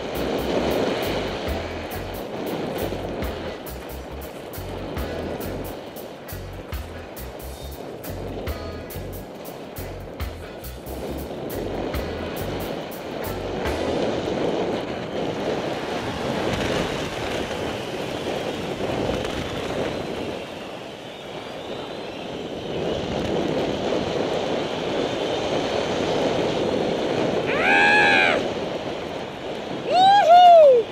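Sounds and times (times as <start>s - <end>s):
skis hissing through powder snow: 0.0s - 8.3s, 9.0s - 29.0s
wind rushing on microphone: 0.0s - 30.9s
person whooping: 27.5s - 28.5s, 29.8s - 30.9s.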